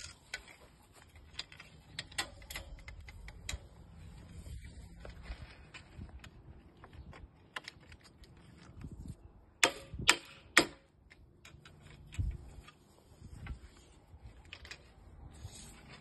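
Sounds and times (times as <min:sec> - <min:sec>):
clicks of profiles being handled: 0:00.0 - 0:04.2.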